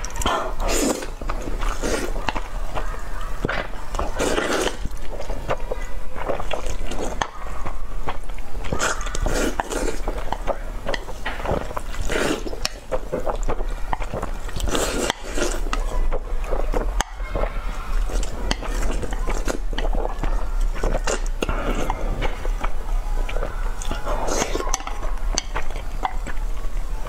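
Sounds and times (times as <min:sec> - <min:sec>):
slurping and chewing noodles: 0:00.0 - 0:27.0.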